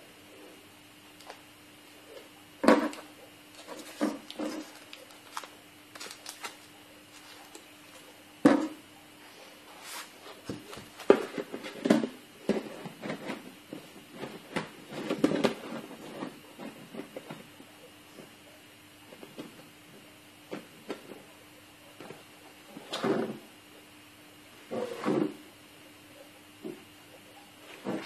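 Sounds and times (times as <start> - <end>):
faint steady hum: 0.0 - 28.0
objects knocking and rustling: 2.6 - 7.7, 8.4 - 8.8, 10.3 - 18.3.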